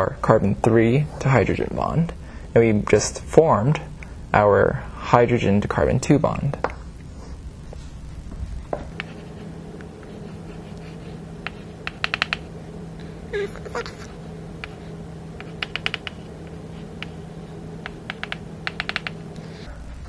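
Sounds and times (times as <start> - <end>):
low steady hum: 1.3 - 20.0
chalk tapping on blackboard: 8.9 - 12.6, 14.6 - 19.3.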